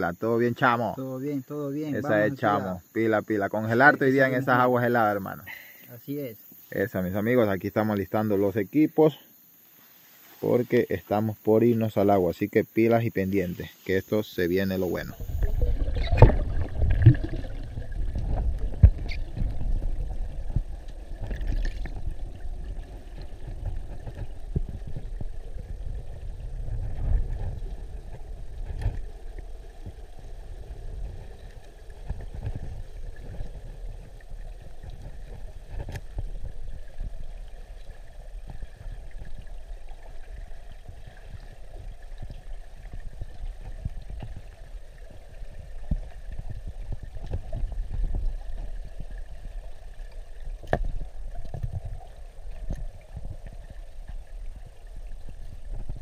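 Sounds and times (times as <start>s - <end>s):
underwater rumble and sloshing: 14.5s - 56.0s.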